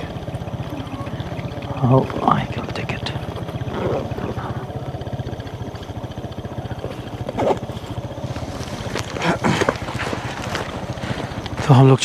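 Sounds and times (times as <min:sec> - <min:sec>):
motorcycle engine running: 0:00.0 - 0:12.0.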